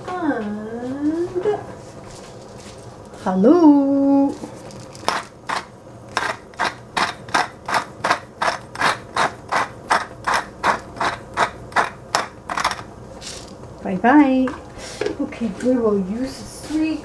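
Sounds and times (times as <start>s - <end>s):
hand spice grinder grinding: 4.4s - 13.7s.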